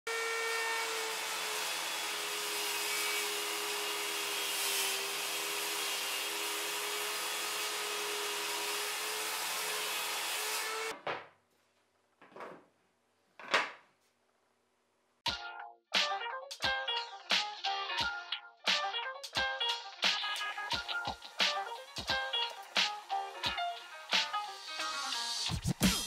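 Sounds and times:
table saw cutting wood: 0.1s - 11.0s, 20.5s - 25.4s.

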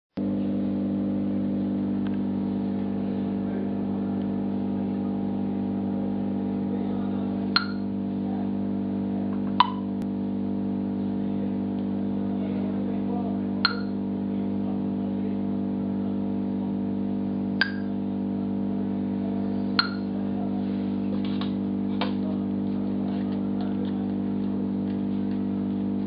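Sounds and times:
steady electrical hum: 0.2s - 26.0s
sharp clicks with ringing tone: 7.6s - 7.9s, 9.6s - 10.0s, 13.7s - 14.0s, 17.6s - 18.0s, 19.8s - 20.1s.

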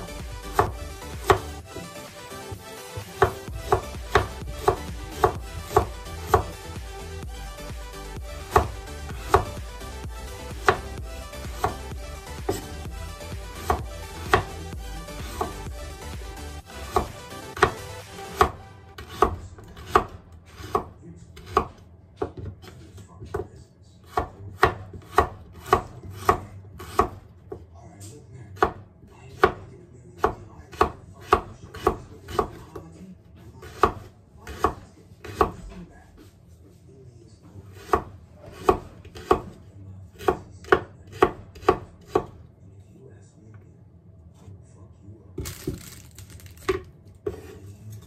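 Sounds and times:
knife chopping on wooden board: 0.4s - 1.8s, 3.0s - 6.6s, 8.3s - 9.6s, 10.4s - 12.8s, 13.5s - 15.8s, 16.8s - 27.6s, 28.6s - 28.8s, 29.4s - 29.6s, 30.2s - 32.8s, 33.6s - 36.3s, 37.7s - 39.6s, 40.2s - 42.4s.

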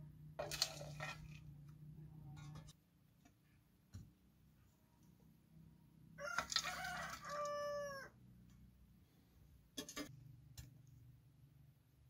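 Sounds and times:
rooster crowing: 6.2s - 8.2s.

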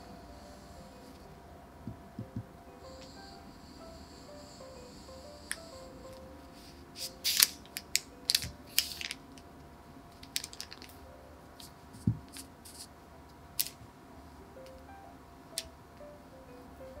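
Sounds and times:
soft background music: 0.0s - 17.0s
dull knock: 1.9s - 2.5s.

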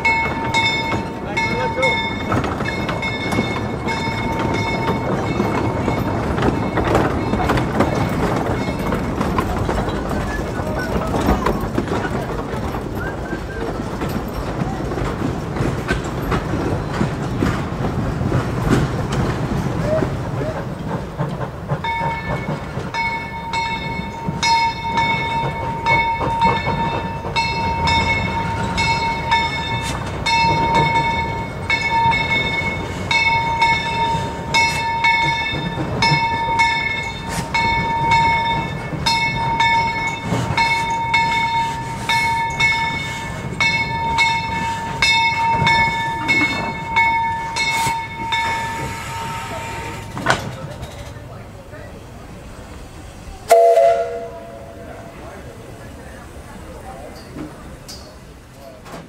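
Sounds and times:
steam train rumbling: 0.0s - 59.0s
bell ringing: 21.9s - 48.8s.

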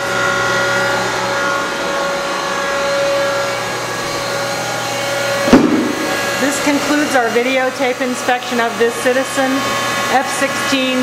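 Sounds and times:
lathe humming and whining: 0.0s - 11.0s
sharp knock: 5.5s - 6.2s.

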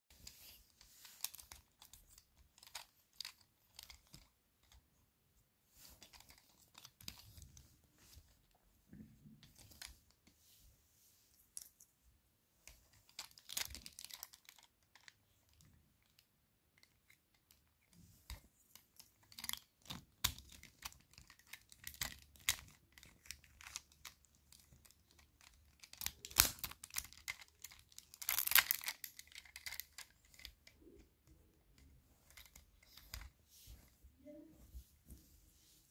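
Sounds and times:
plastic puzzle pieces clicking: 1.1s - 4.8s, 6.0s - 7.4s, 12.8s - 31.1s, 31.8s - 33.3s.

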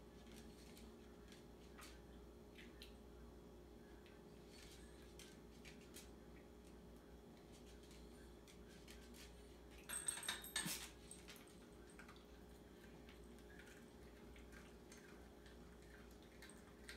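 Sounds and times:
metal bowl clinking and rattling: 9.9s - 12.0s.

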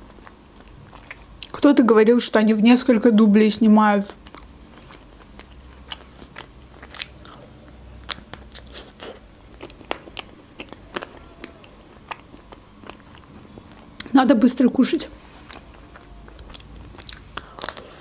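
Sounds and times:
soft chewing: 0.0s - 1.6s, 4.1s - 18.0s
sharp mouth clicks: 5.5s - 14.1s, 15.5s - 17.8s.

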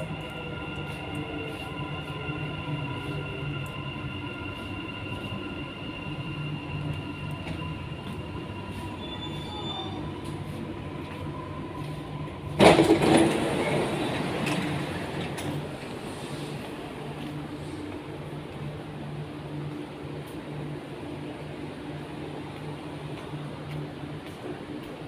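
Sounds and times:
train electric whine and rumble: 0.0s - 25.0s
faint squeals: 8.4s - 10.5s
train doors sliding open: 11.6s - 17.9s.

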